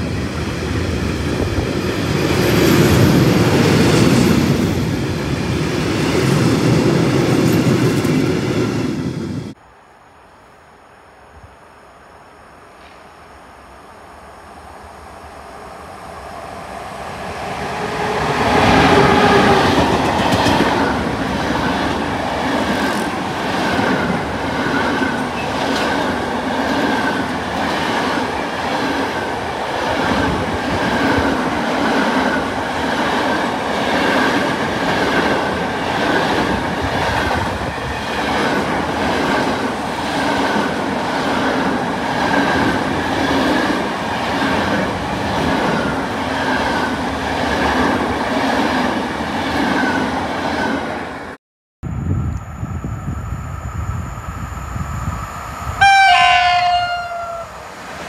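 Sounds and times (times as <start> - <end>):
electric locomotive passing: 0.0 - 58.0
train wheels clattering on rails: 18.7 - 49.0.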